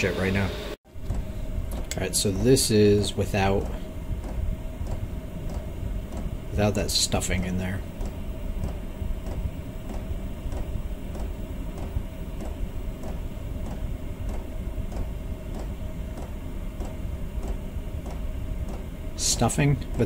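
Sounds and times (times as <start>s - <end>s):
air heater burner and fan rumble: 0.0s - 20.0s
fuel pump ticking: 3.5s - 6.4s, 7.9s - 20.0s.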